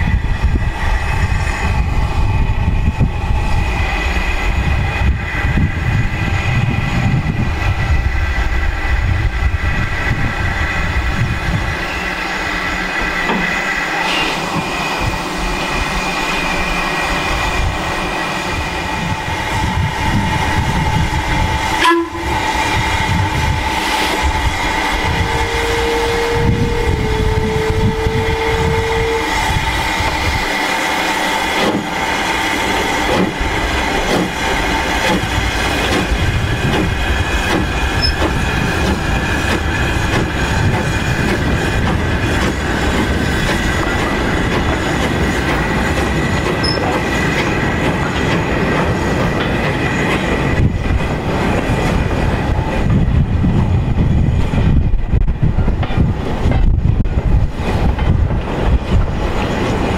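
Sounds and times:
rumble of train wheels: 0.0 - 59.9.

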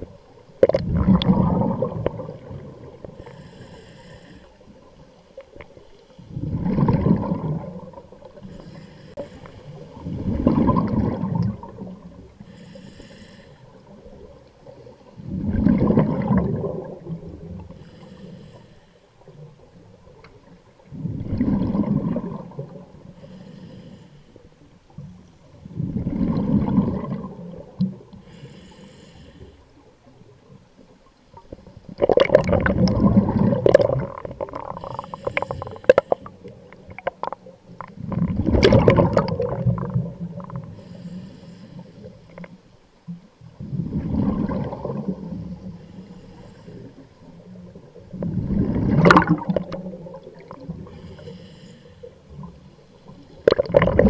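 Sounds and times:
breathing through a regulator: 3.0 - 4.9, 8.3 - 10.0, 12.4 - 13.9, 17.6 - 19.3, 23.0 - 24.6, 28.1 - 29.9, 34.6 - 37.4, 40.6 - 42.5, 45.6 - 47.4, 50.4 - 53.2.

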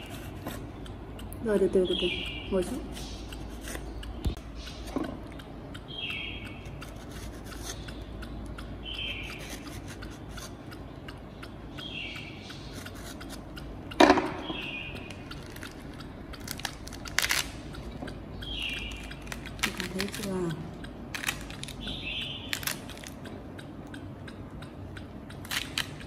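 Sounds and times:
knife cutting fruit rind: 0.0 - 11.6, 12.4 - 23.3, 25.3 - 26.0
fruit crackling pulled apart: 16.4 - 17.6, 22.5 - 23.2.

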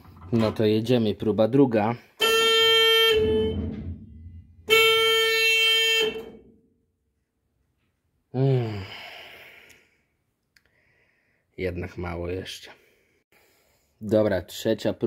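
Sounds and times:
electric horn beeps: 2.2 - 6.5.

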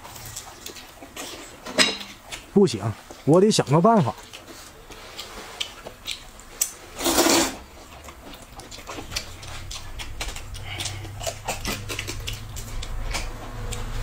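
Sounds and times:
chewing: 0.0 - 14.0
low steady hum: 0.0 - 14.0
lip smacks: 4.1 - 6.9, 7.6 - 14.0
noodle slurp: 6.9 - 13.0.

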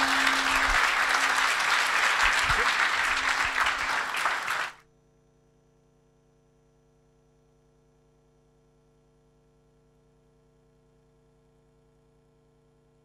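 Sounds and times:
audience applauding: 0.0 - 4.8
faint hum: 0.0 - 4.8.

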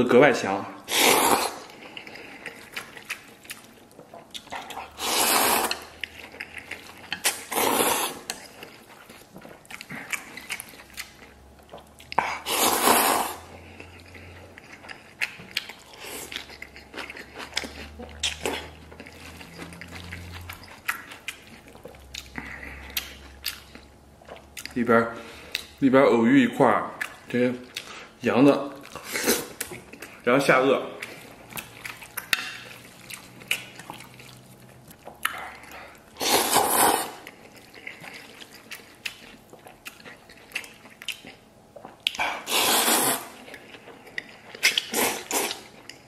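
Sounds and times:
man slurping noodles: 0.8 - 1.7, 5.0 - 5.9, 7.5 - 8.3, 12.3 - 13.5, 36.2 - 37.2, 42.2 - 43.4, 44.8 - 45.6
wet chewing: 0.8 - 25.8, 26.8 - 46.0.

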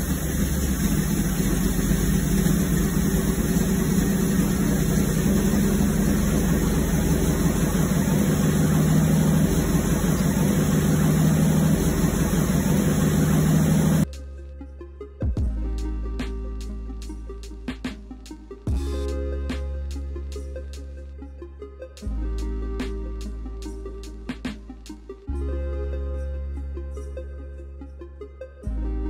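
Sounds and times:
truck engine idling: 0.0 - 14.0.

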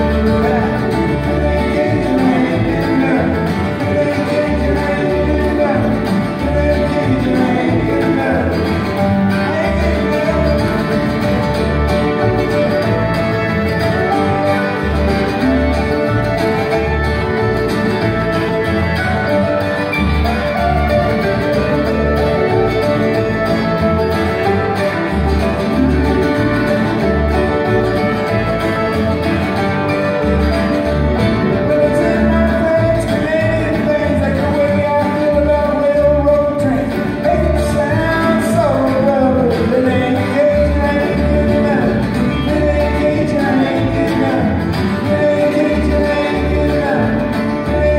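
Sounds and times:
bluegrass band playing: 0.0 - 47.9
upright bass plucking: 0.0 - 47.9.

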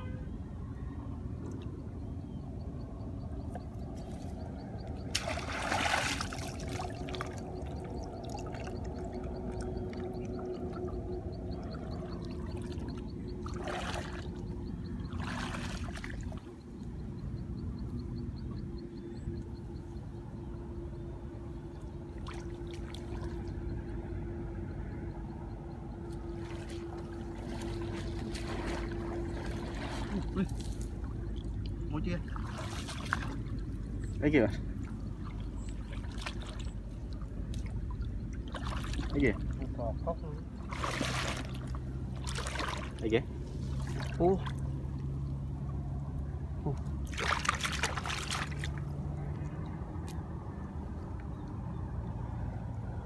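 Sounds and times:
steady low rumble: 0.0 - 53.0
steady motor-like hum: 0.0 - 53.0
shallow water splashing: 5.0 - 16.6, 26.2 - 45.9, 46.6 - 49.8
water pouring and splashing: 5.1 - 7.4, 26.5 - 30.9, 32.3 - 33.6, 40.7 - 43.0, 47.0 - 48.8.

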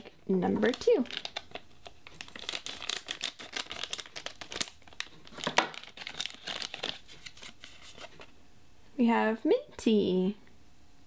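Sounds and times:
plastic packet crinkling: 0.0 - 8.3.

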